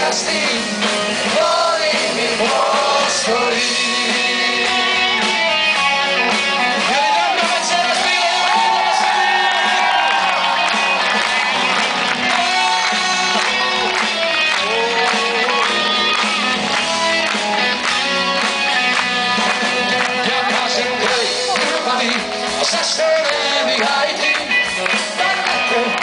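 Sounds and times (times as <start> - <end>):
person singing: 0.0 - 5.6, 12.2 - 16.3, 19.6 - 26.0
drum kit: 0.0 - 26.0
electric guitar: 0.0 - 26.0
keyboard: 0.0 - 26.0.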